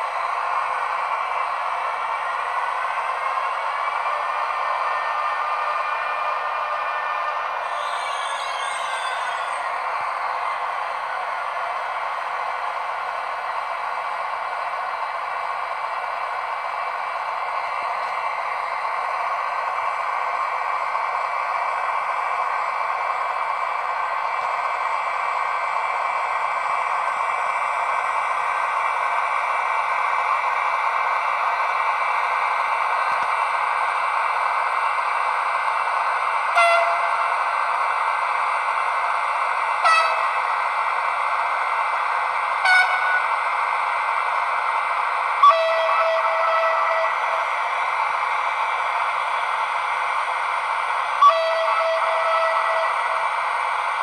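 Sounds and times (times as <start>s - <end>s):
locomotive cooling fans whirring: 0.0s - 7.7s
locomotive horn blasts: 7.7s - 9.5s, 36.6s - 37.2s, 39.8s - 40.4s, 42.6s - 43.2s, 45.4s - 47.2s, 51.2s - 53.0s.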